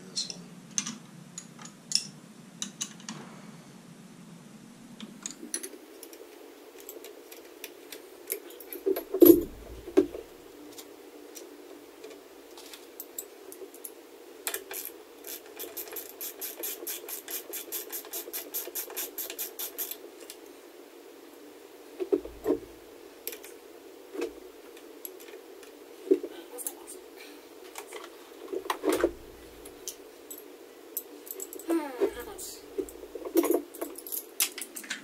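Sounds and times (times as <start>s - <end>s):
ratchet wrench clicking: 15.2s - 20.0s.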